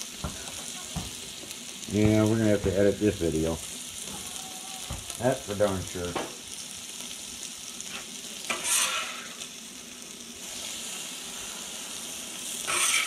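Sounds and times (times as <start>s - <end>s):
meat sizzling on a griddle: 0.0s - 13.0s
spatula scraping griddle: 7.8s - 9.6s, 10.4s - 13.0s.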